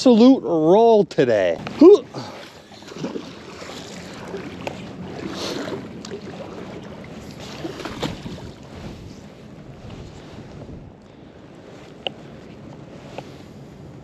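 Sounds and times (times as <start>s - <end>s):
water sloshing: 1.6s - 10.7s
rope rustling against a glove: 7.4s - 11.0s.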